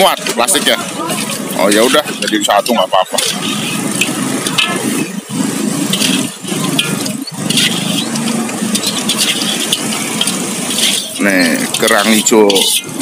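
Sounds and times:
metal ladle scraping wok: 0:00.0 - 0:13.0
low rumble: 0:03.2 - 0:12.0.

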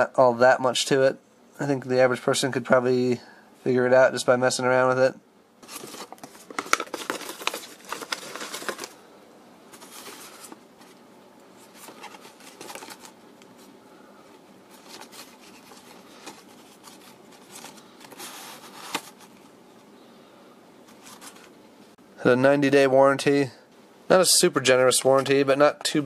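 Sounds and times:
paper rustling: 0:05.6 - 0:09.0, 0:09.7 - 0:11.0, 0:11.6 - 0:13.7, 0:14.3 - 0:19.5, 0:20.9 - 0:21.5.

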